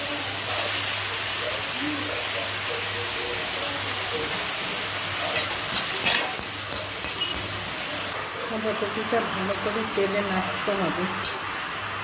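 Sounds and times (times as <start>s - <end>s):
cabbage sizzling in hot oil: 0.0s - 8.2s.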